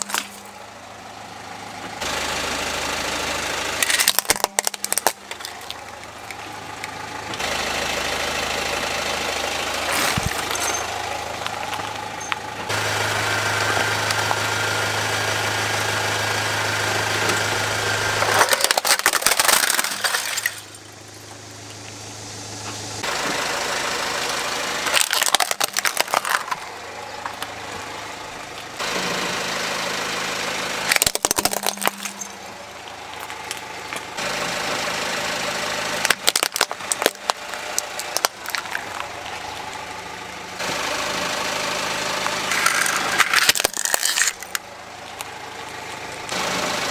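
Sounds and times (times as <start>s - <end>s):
plastic toys cracking under tyre: 0.0s - 0.5s, 3.8s - 7.0s, 9.8s - 12.0s, 18.2s - 20.8s, 24.8s - 27.5s, 30.9s - 34.2s, 36.0s - 39.9s, 42.2s - 46.4s
car engine idling: 0.0s - 46.9s.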